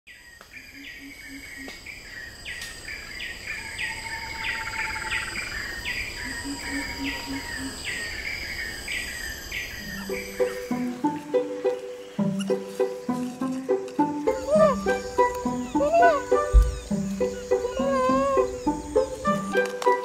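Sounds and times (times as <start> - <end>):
insects droning: 0.1 - 20.0
low pulsed calls: 3.5 - 13.2, 14.2 - 19.6.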